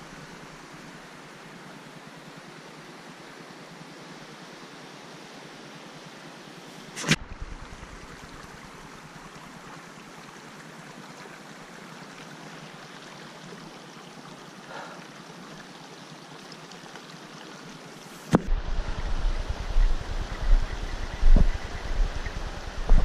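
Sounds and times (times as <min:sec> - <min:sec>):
steady rushing noise: 0:06.7 - 0:08.9, 0:18.1 - 0:23.0
sharp click: 0:07.0 - 0:07.2.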